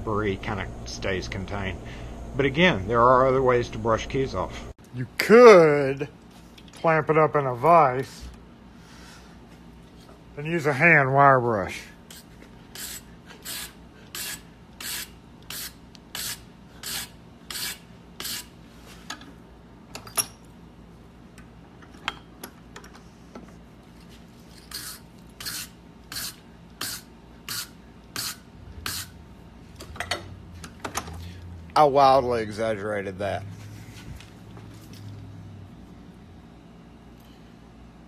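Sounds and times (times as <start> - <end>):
wire brush scrubbing metal: 12.1 - 18.5, 24.6 - 29.2.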